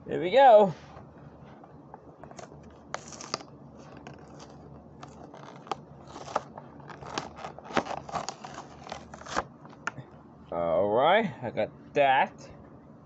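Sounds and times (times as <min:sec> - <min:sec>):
plastic blister crackling: 0:02.2 - 0:10.0.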